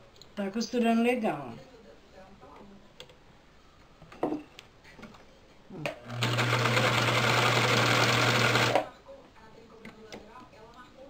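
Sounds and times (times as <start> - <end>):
sewing machine motor humming: 6.0 - 8.8.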